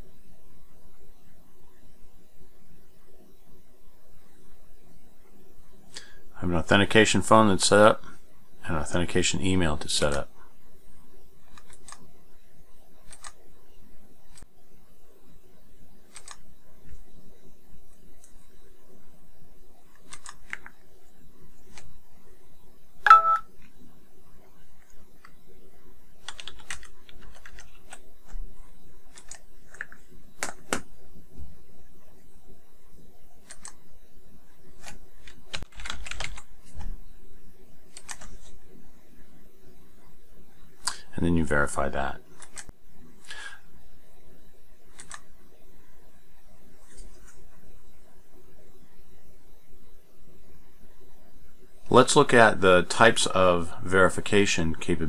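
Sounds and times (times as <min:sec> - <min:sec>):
keyboard typing: 0:11.5 - 0:12.0, 0:13.0 - 0:13.4, 0:16.1 - 0:16.4, 0:19.9 - 0:20.8, 0:26.2 - 0:28.4, 0:29.1 - 0:30.8, 0:33.4 - 0:33.8, 0:34.8 - 0:36.9, 0:37.9 - 0:38.5, 0:42.4 - 0:42.7, 0:44.9 - 0:45.2
computer mouse clicking: 0:11.5 - 0:12.1, 0:13.0 - 0:13.4, 0:16.1 - 0:16.4, 0:19.9 - 0:20.8, 0:21.7 - 0:21.9, 0:26.2 - 0:28.4, 0:29.1 - 0:30.9, 0:33.4 - 0:33.8, 0:34.8 - 0:36.9, 0:37.9 - 0:38.6, 0:42.4 - 0:42.7, 0:44.9 - 0:45.3.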